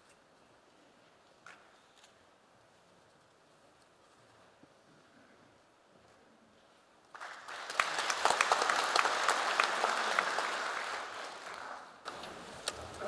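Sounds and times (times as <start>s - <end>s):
audience applauding: 7.1s - 12.3s.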